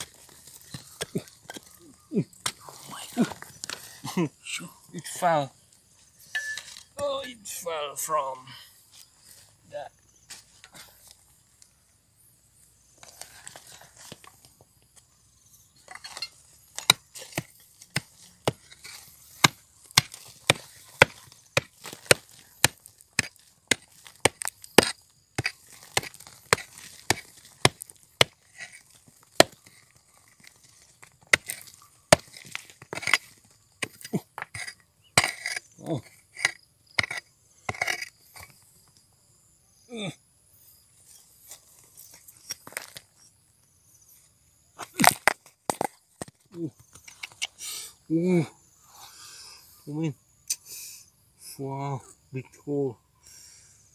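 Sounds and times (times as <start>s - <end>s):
hand pick striking stony soil: 0.0s - 4.0s, 15.8s - 38.6s, 44.8s - 47.5s
earth and stones crumbling: 0.0s - 4.2s, 15.8s - 38.6s, 44.8s - 47.4s.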